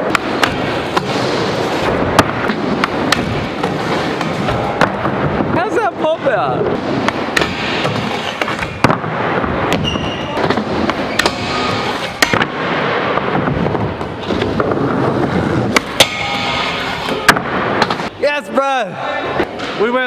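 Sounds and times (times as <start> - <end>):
skateboard wheels rolling on plywood: 6.6 - 15.9.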